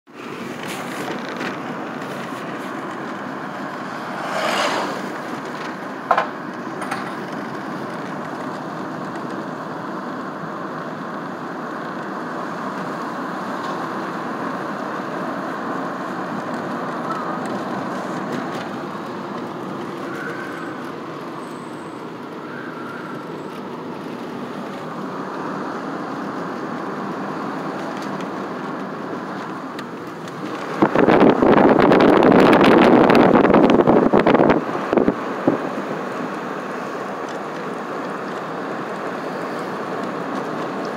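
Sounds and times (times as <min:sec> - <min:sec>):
road and tyre noise: 0:00.0 - 0:40.9
car engine: 0:00.1 - 0:40.9
brief rushing swell: 0:03.9 - 0:05.2.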